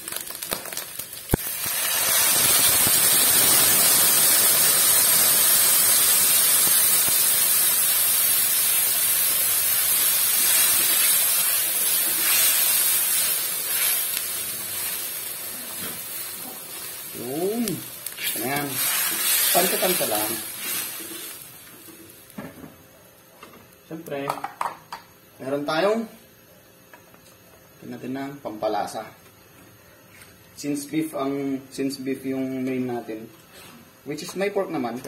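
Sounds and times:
water hissing in hot wok: 0.0 - 22.4.

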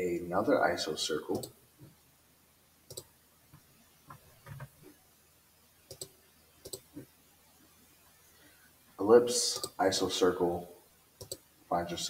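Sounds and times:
computer mouse clicks: 1.3 - 1.6, 2.9 - 3.1, 5.9 - 7.1, 9.6 - 9.8, 11.2 - 11.4.

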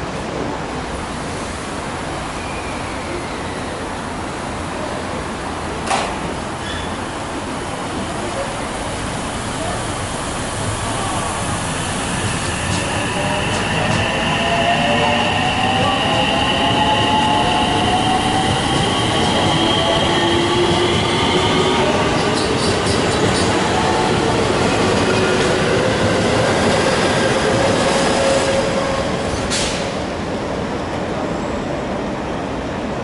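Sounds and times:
electric train running past: 6.3 - 32.0.

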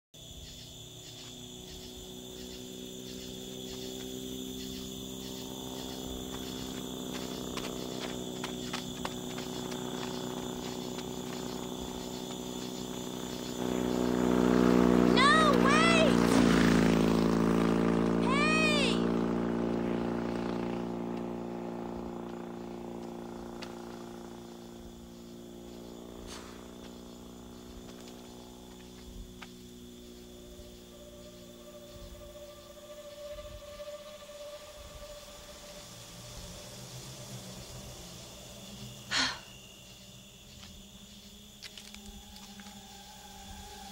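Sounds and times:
crickets chirping: 0.2 - 43.9
motorcycle engine running: 1.0 - 38.6
low steady drone: 29.6 - 39.5, 41.8 - 43.9.

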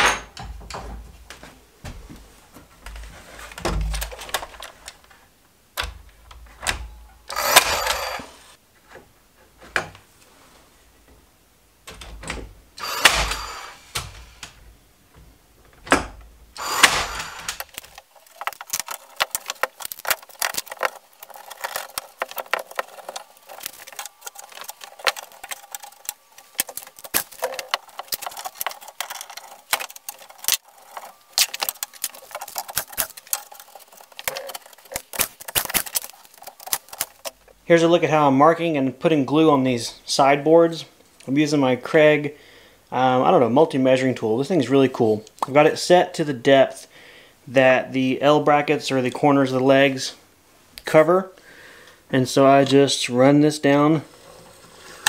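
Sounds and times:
clamps and tools clattering: 0.0 - 1.1, 5.8 - 8.4, 12.0 - 14.6, 15.7 - 37.6
nail gun firing: 7.3 - 8.4, 12.8 - 14.0, 16.6 - 17.8.

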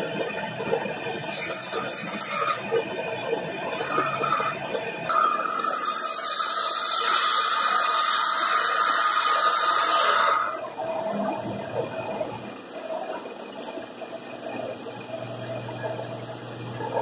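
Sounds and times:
saw blade whine: 1.1 - 2.8, 3.7 - 10.8.

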